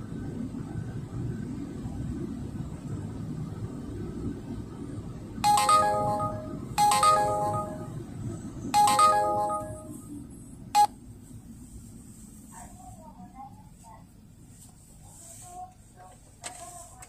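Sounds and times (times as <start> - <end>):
electronic chime melody: 5.4 - 8.1, 8.8 - 10.0.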